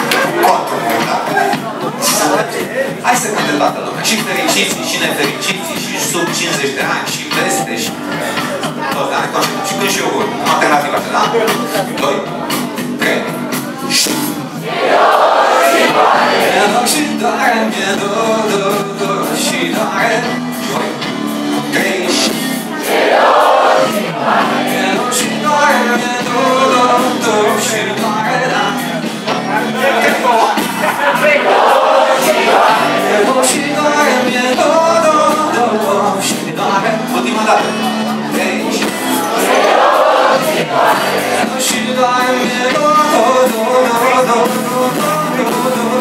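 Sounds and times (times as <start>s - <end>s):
live band playing: 0.0s - 46.0s
people singing: 14.0s - 20.2s, 21.7s - 28.8s, 29.5s - 46.0s.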